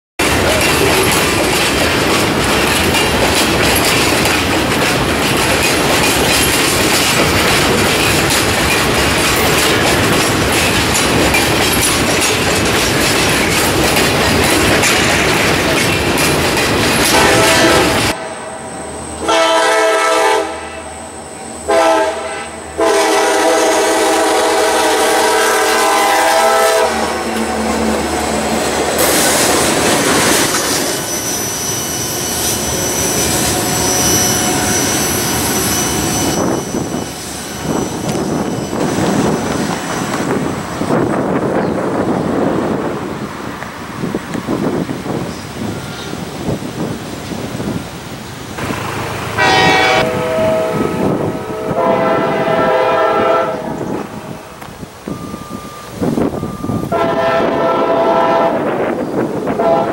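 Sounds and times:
train wheels clattering over rails: 0.2s - 18.2s, 23.1s - 59.9s
locomotive horn blasts: 17.1s - 28.1s, 49.4s - 54.5s, 55.6s - 58.9s, 59.5s - 59.9s.

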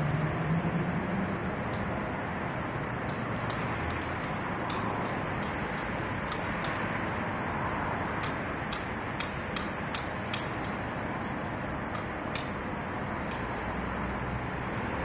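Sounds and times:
street traffic: 0.0s - 15.0s
sharp clicks: 8.2s - 12.6s.

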